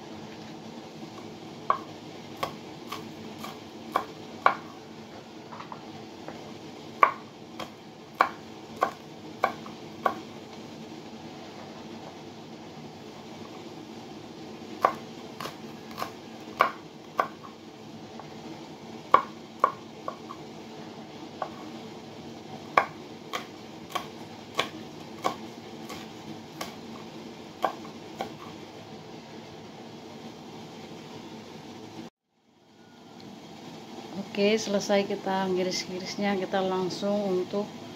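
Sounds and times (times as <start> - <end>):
steady low hum: 0.0 - 37.9
knife tapping on cutting board: 7.0 - 10.2, 14.8 - 17.5, 19.1 - 20.4, 22.8 - 26.8, 27.6 - 28.4.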